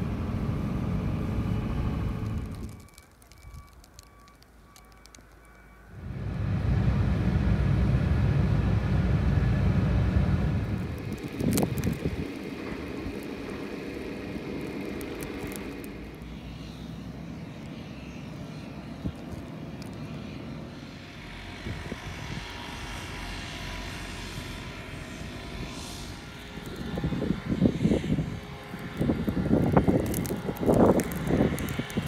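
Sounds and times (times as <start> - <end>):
distant engine droning: 3.8 - 32.0
wind noise on microphone: 6.0 - 15.8, 21.5 - 22.9, 25.1 - 32.0.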